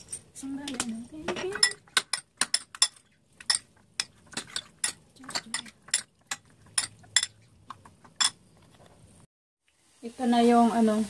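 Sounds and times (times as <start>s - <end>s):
cutlery clinking against ceramic bowl: 0.0s - 8.4s.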